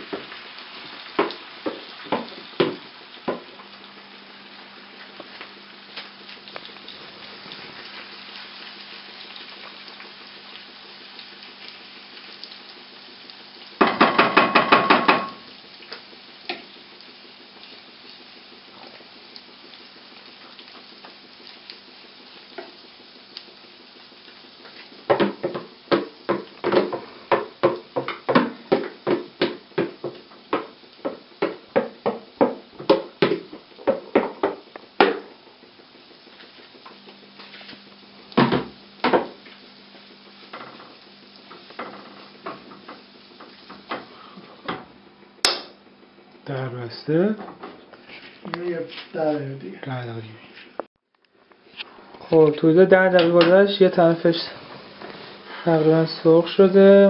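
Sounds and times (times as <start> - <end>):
food sizzling in hot oil: 0.0 - 50.8, 51.6 - 57.0
utensil knocking against pan: 13.8 - 15.4.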